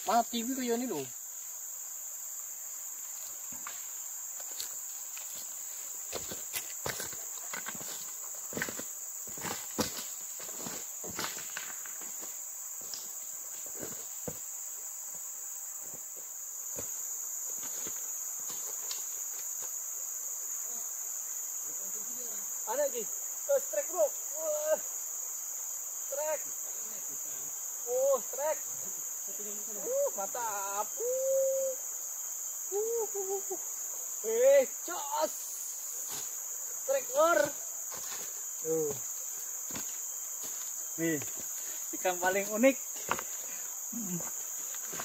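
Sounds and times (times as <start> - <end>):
insect chorus: 0.0 - 45.0
boots on loose stones: 4.4 - 15.2, 15.8 - 19.8, 37.3 - 45.0.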